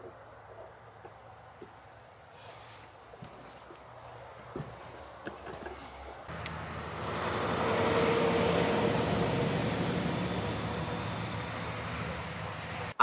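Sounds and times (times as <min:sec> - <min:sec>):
engine drone passing: 0:06.3 - 0:13.0.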